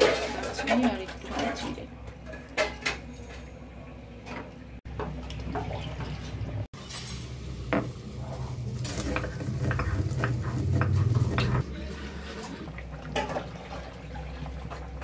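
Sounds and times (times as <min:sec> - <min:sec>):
wooden spatula scraping pan: 0:08.3 - 0:12.7.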